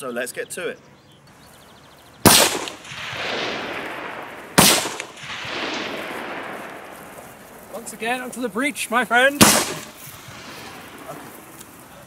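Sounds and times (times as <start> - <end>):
echo rolling off hillsides: 1.3 - 12.0
rifle shots: 2.2 - 7.7, 9.4 - 11.3.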